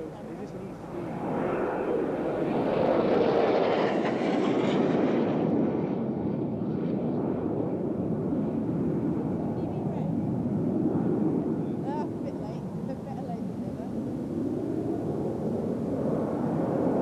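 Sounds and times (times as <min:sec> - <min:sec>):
jet engine roar: 0:00.0 - 0:17.0.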